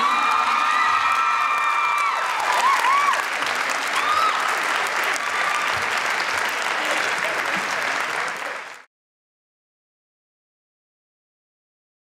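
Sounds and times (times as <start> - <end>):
shouts and whoops: 0.0 - 5.8
large audience applauding: 0.0 - 8.9.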